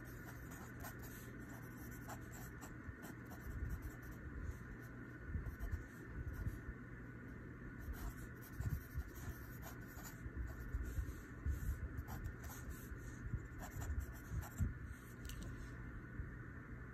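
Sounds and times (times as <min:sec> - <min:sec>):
pen scratching on paper: 0:00.0 - 0:04.2, 0:05.5 - 0:06.5, 0:07.8 - 0:14.7.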